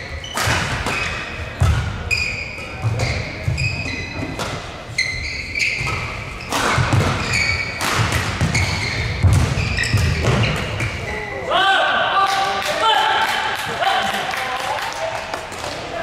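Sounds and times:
shoes squeaking on court: 0:00.0 - 0:11.3
rackets hitting shuttlecock: 0:00.3 - 0:04.7, 0:05.8 - 0:11.0.

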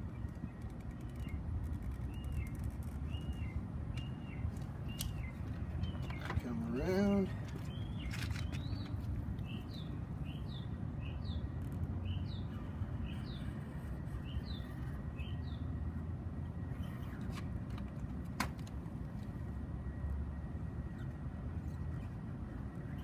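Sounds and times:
small bird chirping: 0:00.0 - 0:15.8
low outdoor rumble: 0:00.0 - 0:23.0.

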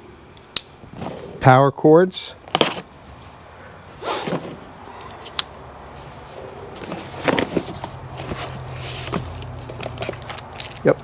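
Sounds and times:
cardboard flaps rustling: 0:02.4 - 0:02.9, 0:04.2 - 0:04.7, 0:06.7 - 0:10.8.

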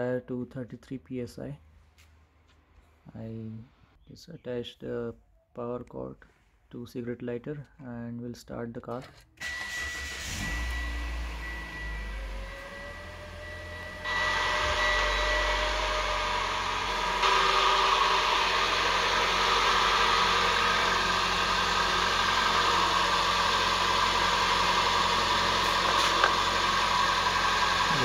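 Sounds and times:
car engine idling: 0:09.4 - 0:28.0.

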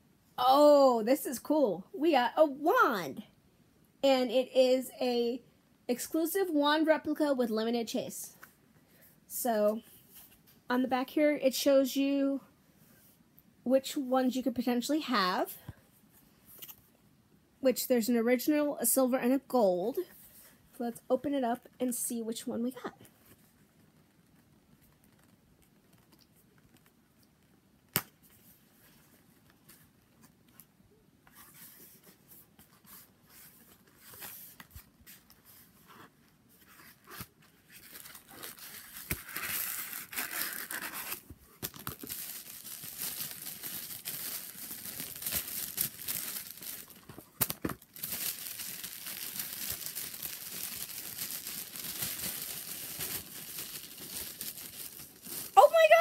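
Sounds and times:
paper wrapping rustling: 0:31.3 - 0:56.0.

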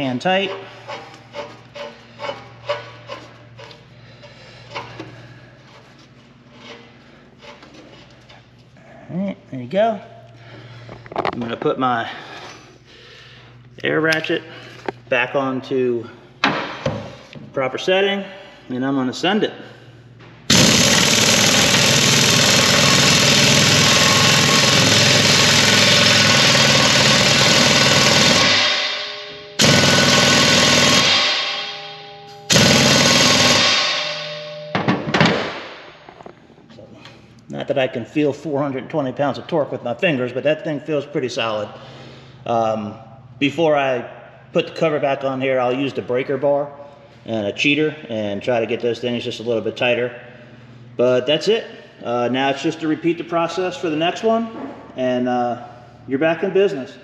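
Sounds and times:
steady low hum: 0:00.0 - 0:57.0
pneumatic impact wrench hammering: 0:20.5 - 0:36.0.

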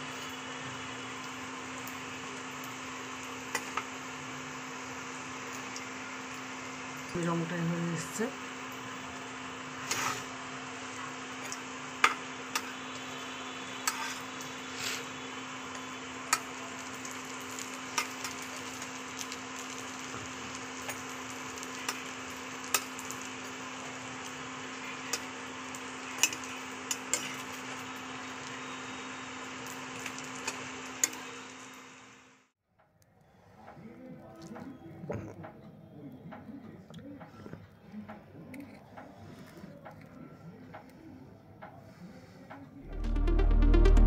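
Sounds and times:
bread frying in hot oil: 0:00.0 - 0:32.4
low hum: 0:42.8 - 0:44.0.

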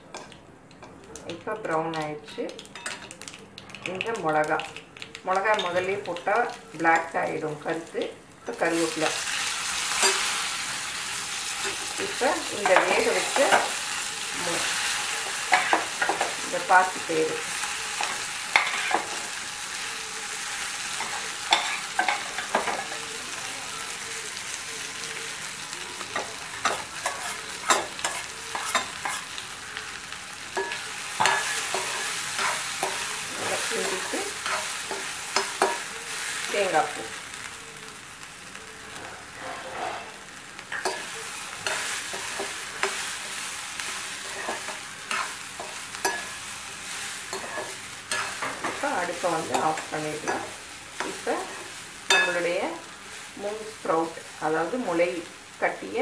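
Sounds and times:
hot oil sizzling: 0:00.0 - 0:56.0
spoon scraping metal pan: 0:18.0 - 0:19.3, 0:26.2 - 0:29.4, 0:30.5 - 0:35.9, 0:39.0 - 0:43.1, 0:43.8 - 0:46.4, 0:47.3 - 0:52.5.

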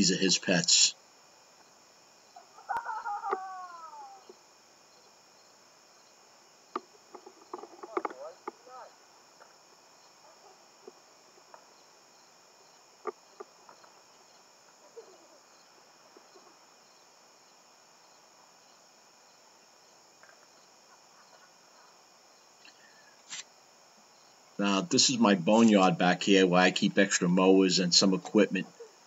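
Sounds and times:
crickets and insects chirping: 0:00.0 - 0:29.0
soft clicks and knocks: 0:06.7 - 0:08.6.

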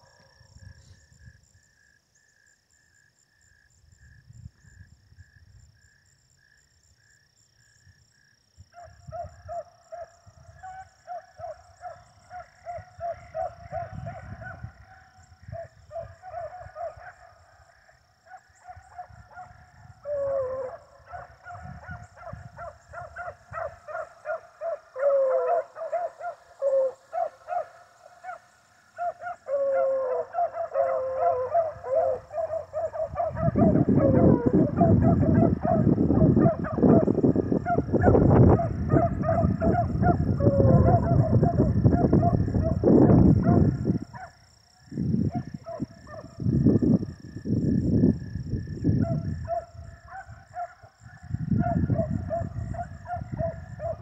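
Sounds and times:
beagles baying: 0:08.8 - 0:44.4.

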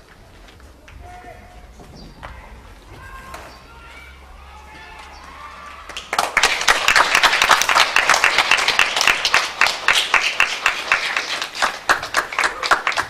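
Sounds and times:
audience applause: 0:04.8 - 0:13.0.

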